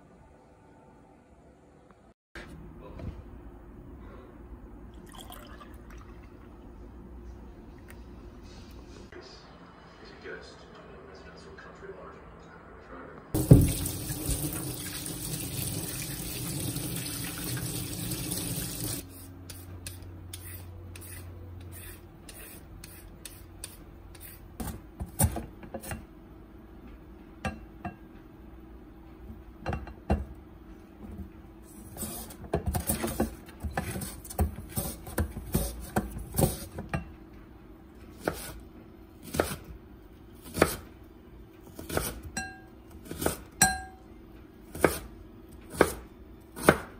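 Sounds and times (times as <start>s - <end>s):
tap running into sink: 13.4s - 19.0s
knife chopping on wooden board: 38.2s - 38.6s, 39.2s - 39.6s, 40.4s - 40.8s, 41.8s - 42.3s, 44.7s - 45.1s, 45.7s - 46.9s.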